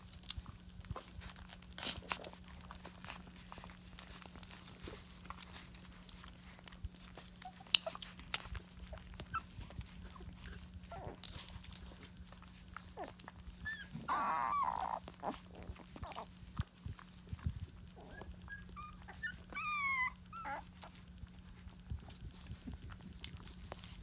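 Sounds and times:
puppy whining: 0:00.0 - 0:24.0
small clicks and shuffling: 0:00.0 - 0:24.0
puppy squeaks: 0:13.5 - 0:15.4, 0:18.0 - 0:20.9.

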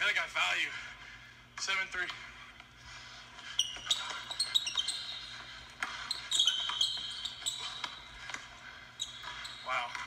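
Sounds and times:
sneakers squeaking: 0:03.2 - 0:10.0.

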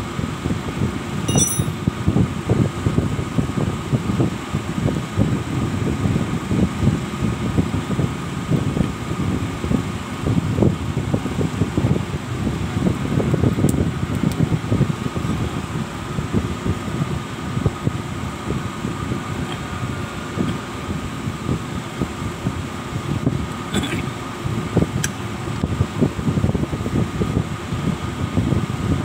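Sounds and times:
faint high tone: 0:01.3 - 0:01.8.

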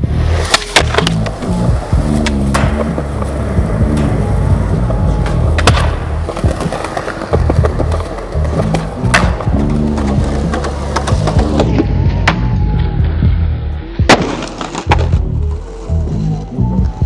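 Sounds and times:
background music: 0:00.0 - 0:17.0
skateboard wheels rolling on concrete: 0:00.0 - 0:17.0
skateboard clacks: 0:00.4 - 0:12.5.

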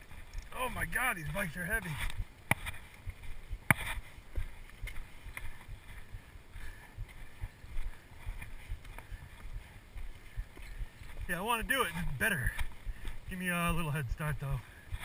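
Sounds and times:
body movement noise: 0:00.0 - 0:15.0
wind rumbling on microphone: 0:00.0 - 0:15.0.

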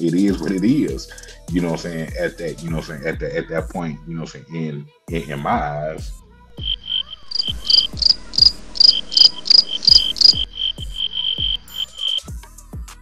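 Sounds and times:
crickets chirping: 0:06.6 - 0:12.3.

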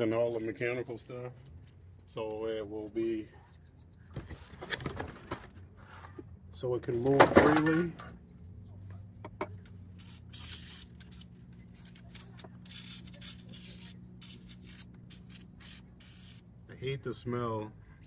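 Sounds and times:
aerosol can spraying: 0:09.9 - 0:11.3, 0:12.6 - 0:16.4.

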